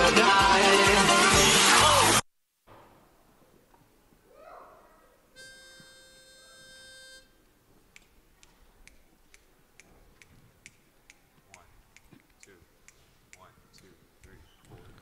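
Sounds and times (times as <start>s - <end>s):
pitch pipe note: 5.4s - 7.4s
faint sharp tempo clicks: 7.9s - 14.8s.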